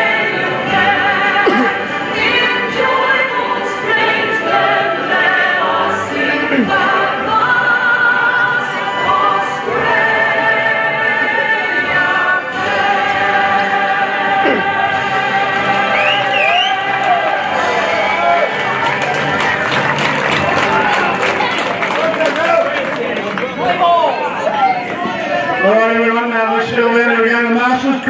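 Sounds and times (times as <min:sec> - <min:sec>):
operatic singing: 0:00.0 - 0:22.0
musical accompaniment: 0:00.0 - 0:22.2.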